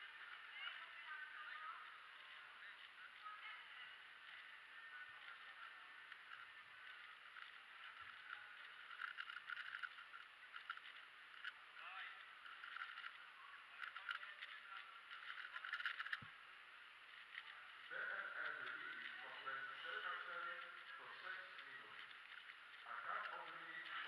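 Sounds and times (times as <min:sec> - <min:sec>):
faint background chatter: 0:00.0 - 0:24.0
plastic puzzle cube clicking: 0:08.9 - 0:11.6, 0:15.1 - 0:16.3.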